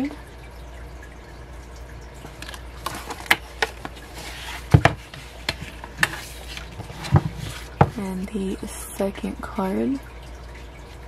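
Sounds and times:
paper rustling: 2.4 - 8.0.

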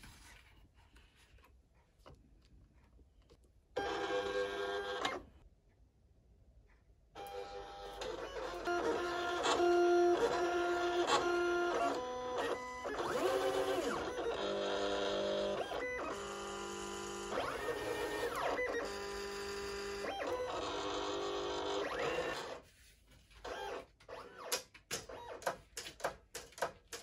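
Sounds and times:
cutting machine motors whining: 7.3 - 22.6.

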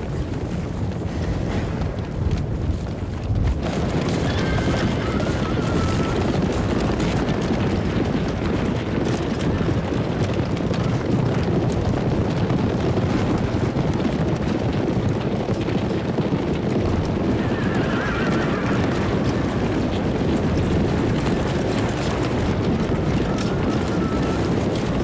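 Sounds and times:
horses galloping: 0.0 - 25.0
horse whinnying: 4.0 - 7.4, 17.1 - 25.0.

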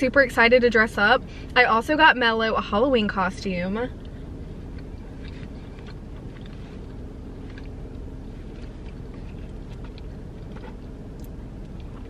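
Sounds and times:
car hum: 0.0 - 12.0
person chewing: 4.0 - 12.0.

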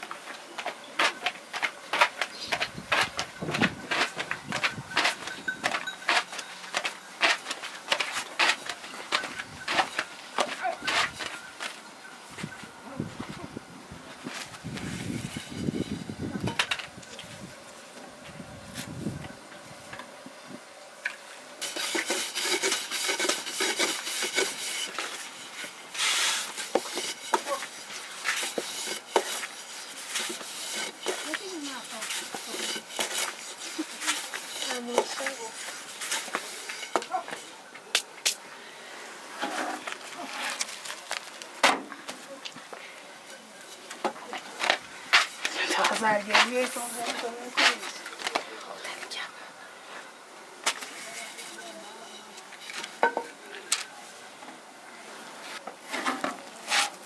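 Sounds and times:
dry flatbread rustling and crackling: 0.0 - 13.4, 21.6 - 38.2, 39.3 - 48.6.

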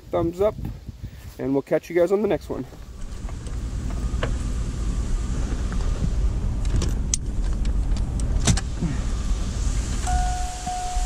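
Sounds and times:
vehicle interior rumble: 2.2 - 11.0
sharp clicks and rattles: 2.7 - 4.6, 5.4 - 8.7.

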